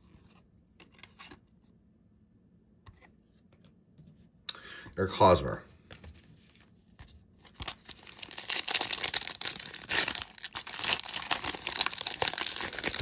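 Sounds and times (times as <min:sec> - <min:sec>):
foil wrapper tearing and crinkling: 0:07.4 - 0:13.0.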